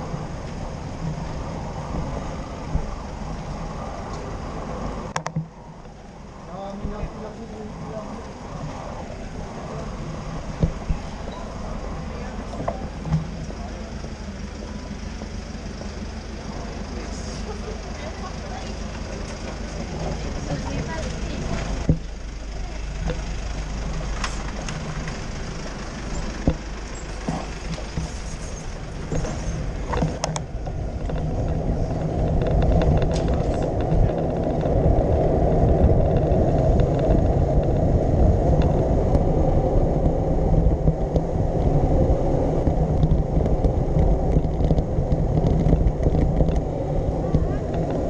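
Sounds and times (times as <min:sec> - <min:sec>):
wind buffeting microphone: 0:00.0 - 0:13.4, 0:17.9 - 0:48.0
street traffic noise: 0:00.0 - 0:48.0
bicycle clicks and knocks: 0:26.1 - 0:41.8, 0:42.5 - 0:48.0.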